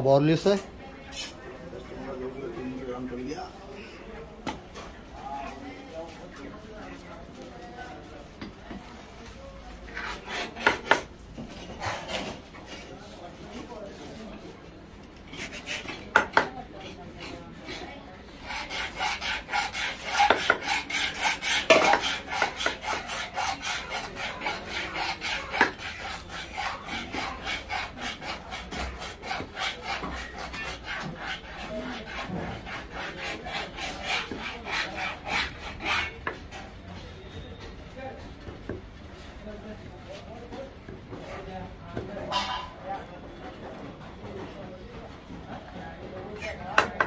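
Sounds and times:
knife sawing fish on wood: 9.9 - 11.1, 15.3 - 36.4.

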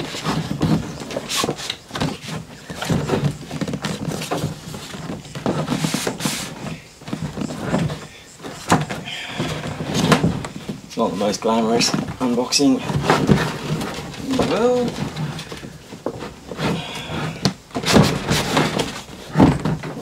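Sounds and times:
box knocks and bumps: 0.0 - 20.0
cardboard scraping on cardboard: 0.0 - 20.0.

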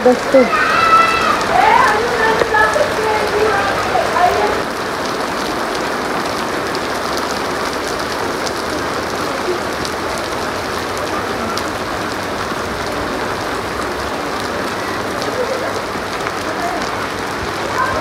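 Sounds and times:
steady rain on paving: 0.0 - 18.0
water drops splashing: 0.6 - 4.6.

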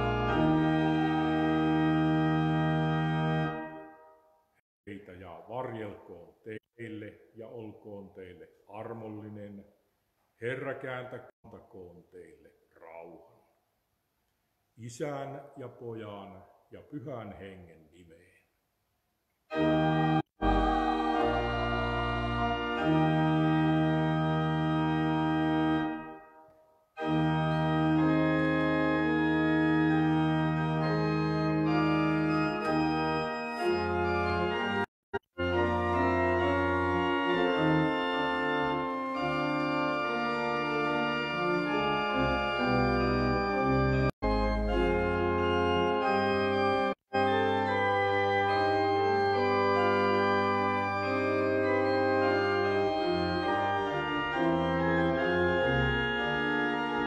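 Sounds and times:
church organ playing chords: 0.0 - 4.4, 19.5 - 57.0.

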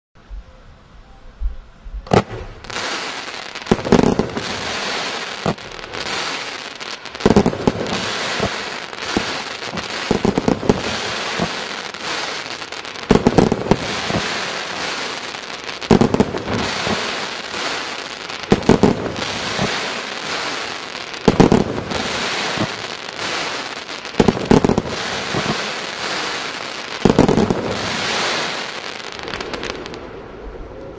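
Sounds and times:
firework launch bangs: 2.1 - 6.6, 15.9 - 30.0
firework hiss: 2.1 - 30.5.

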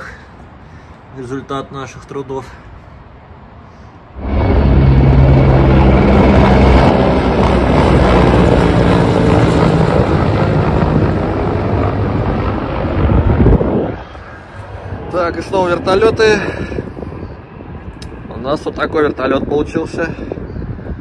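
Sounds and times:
helicopter engine noise: 4.1 - 21.0
helicopter rotor beat: 4.2 - 21.0.

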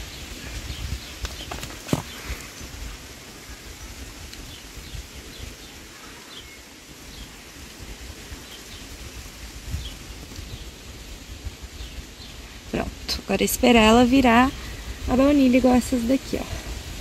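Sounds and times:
wind buffeting microphone: 0.0 - 5.9, 6.6 - 17.0
faint bird chirps: 3.4 - 7.4.

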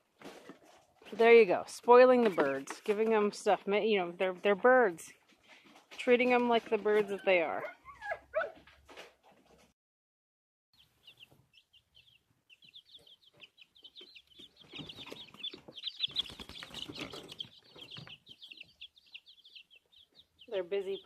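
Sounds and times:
chicks peeping: 10.8 - 21.0.

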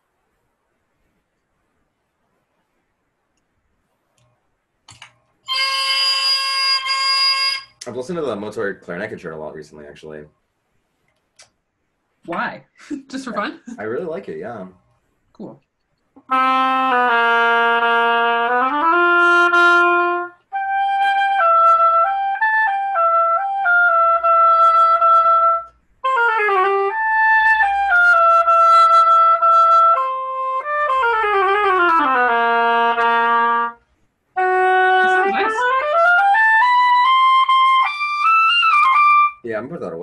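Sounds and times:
oboe playing: 5.5 - 7.8, 16.2 - 33.8, 34.4 - 39.4.

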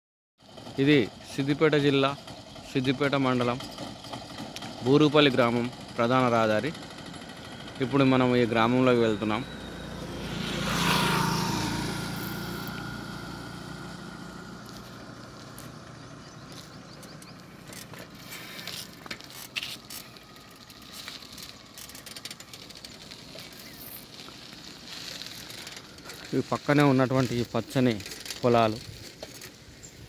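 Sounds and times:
motorcycle engine passing by: 3.8 - 30.0
light clicks and crunches: 16.5 - 29.6.

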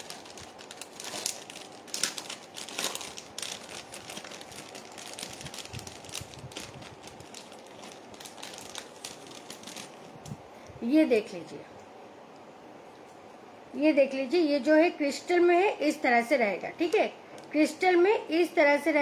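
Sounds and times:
packaging crinkling and rustling: 0.0 - 10.3.

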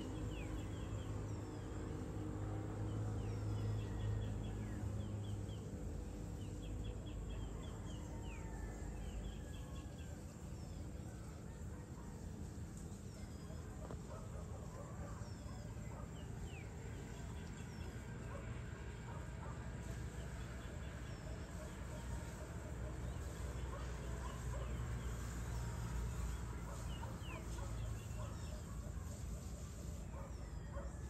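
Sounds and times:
birds chirping rapidly: 9.0 - 31.0.

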